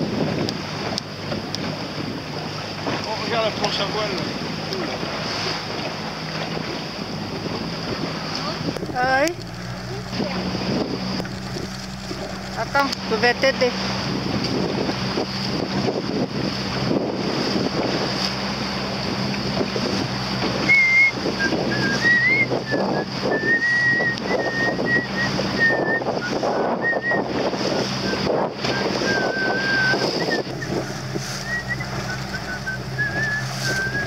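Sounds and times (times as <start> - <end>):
water rushing past boat: 0.0 - 34.0
wind buffeting microphone: 0.0 - 34.0
steady low hum: 1.2 - 22.7, 28.3 - 34.0
wavering high whistle: 20.6 - 27.3, 28.0 - 34.0.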